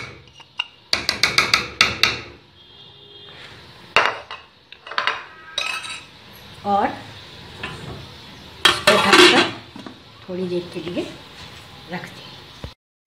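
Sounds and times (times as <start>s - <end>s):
spoon scraping a plate: 4.3s - 6.1s.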